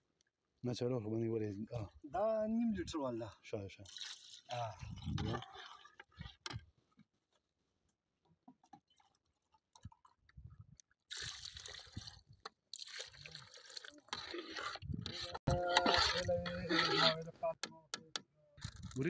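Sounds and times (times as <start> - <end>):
water pouring and splashing: 3.7 - 6.6, 11.0 - 17.2.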